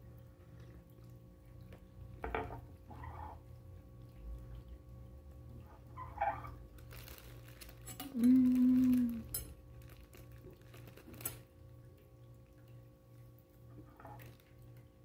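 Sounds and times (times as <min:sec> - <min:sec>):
plastic wrapper crackling: 0:06.8 - 0:11.4
woman humming while chewing: 0:08.0 - 0:09.4.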